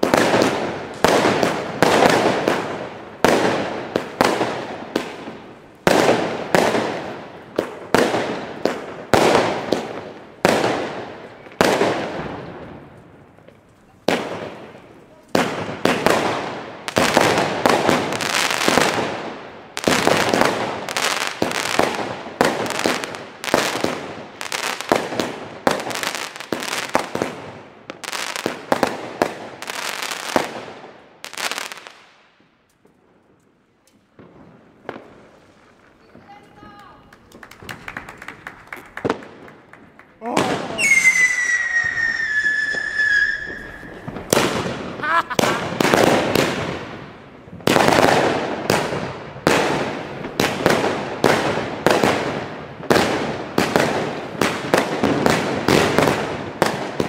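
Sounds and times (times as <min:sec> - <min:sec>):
fireworks bangs: 0:00.0 - 0:33.4, 0:34.0 - 0:57.0.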